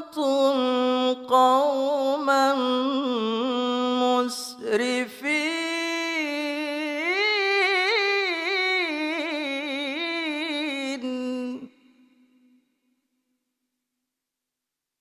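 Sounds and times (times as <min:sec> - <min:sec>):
man reciting in melisma: 0:00.0 - 0:12.6.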